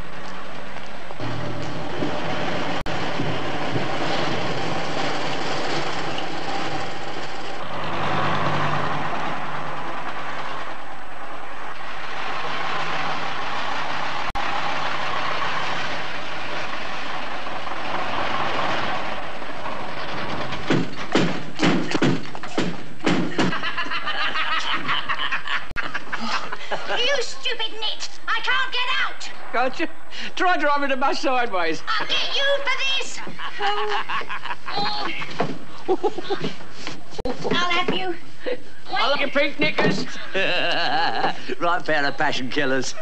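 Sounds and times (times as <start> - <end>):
bus engines running: 0.0 - 21.6.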